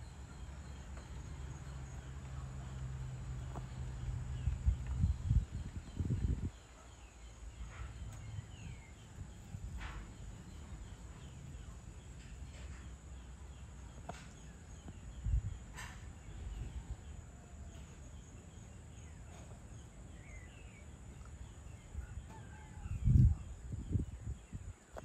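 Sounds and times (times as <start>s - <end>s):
low steady rumble: 0.0s - 6.6s
bird chirps: 0.0s - 25.0s.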